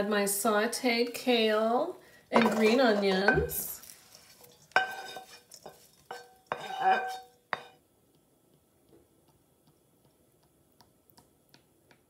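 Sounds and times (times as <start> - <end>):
skillet clanking on steel bowl: 2.4 - 3.7, 4.7 - 7.8.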